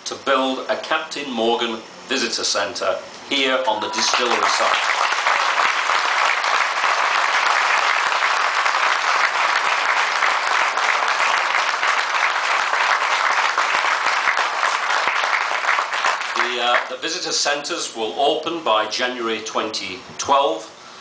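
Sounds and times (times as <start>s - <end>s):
audience applauding: 3.6s - 17.0s.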